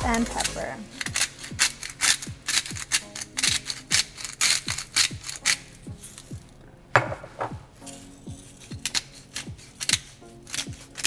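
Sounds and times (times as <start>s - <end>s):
crisp percussion: 0.0s - 11.0s.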